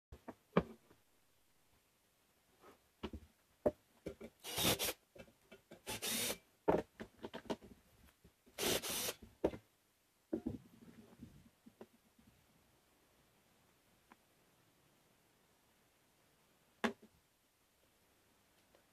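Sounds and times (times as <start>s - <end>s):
cordless drill driving screws: 4.4s - 5.0s, 5.8s - 6.4s, 8.6s - 9.2s.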